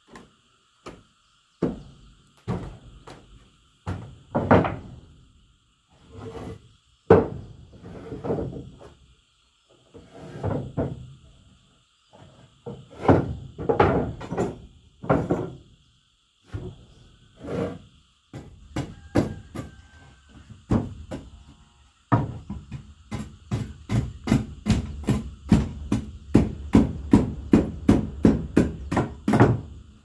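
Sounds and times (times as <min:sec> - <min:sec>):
hammering knocks and thuds: 0:00.1 - 0:05.0, 0:07.1 - 0:07.5, 0:12.6 - 0:15.6, 0:18.3 - 0:21.5, 0:22.1 - 0:29.8.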